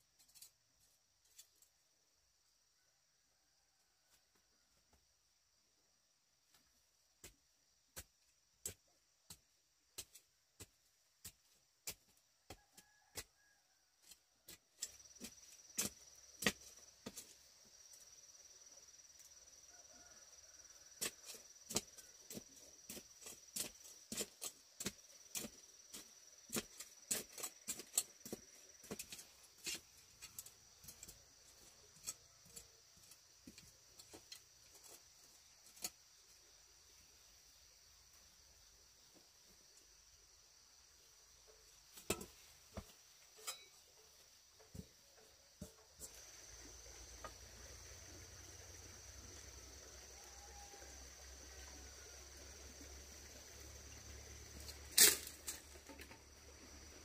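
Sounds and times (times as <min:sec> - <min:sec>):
steady high hiss: 0:21.4 - 0:57.0.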